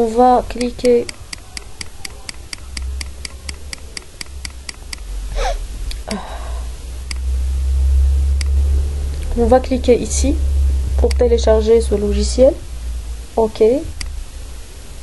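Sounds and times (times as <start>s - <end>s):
steady low hum: 0.0s - 15.0s
mouse scroll wheel clicking: 0.6s - 5.0s.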